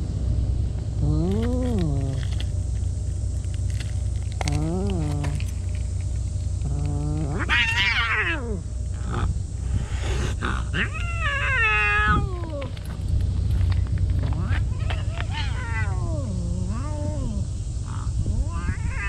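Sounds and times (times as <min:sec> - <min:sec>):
steady low rumble: 0:00.0 - 0:19.0
cats growling and yowling: 0:01.0 - 0:02.4, 0:03.8 - 0:05.8, 0:06.6 - 0:13.1, 0:14.2 - 0:19.0.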